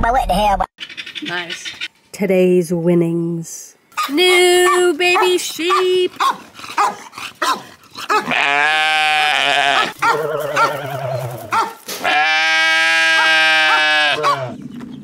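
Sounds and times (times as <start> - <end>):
sheep bleating: 8.2 - 14.6.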